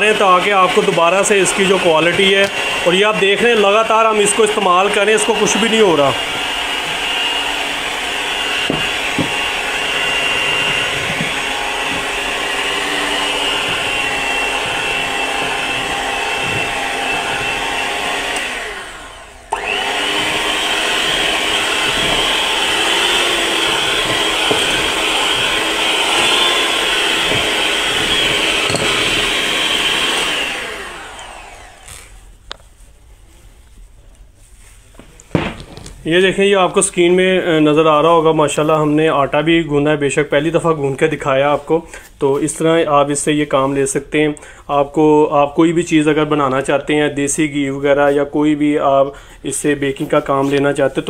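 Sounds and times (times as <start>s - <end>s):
hand mixer motor whine: 0.0s - 32.3s.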